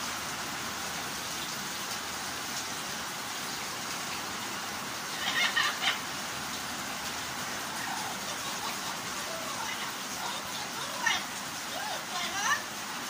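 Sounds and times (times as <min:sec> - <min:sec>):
steady rain-like hiss: 0:00.0 - 0:13.0
parrot harsh call: 0:05.1 - 0:06.0.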